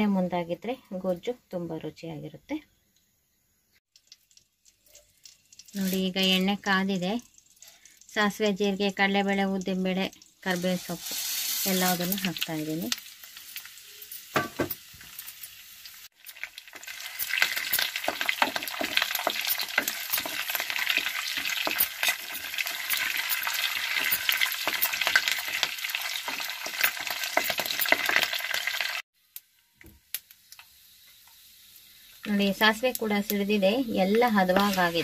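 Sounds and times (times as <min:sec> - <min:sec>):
seeds sizzling in hot oil: 0:03.8 - 0:35.0
wooden spatula stirring: 0:34.4 - 0:35.0.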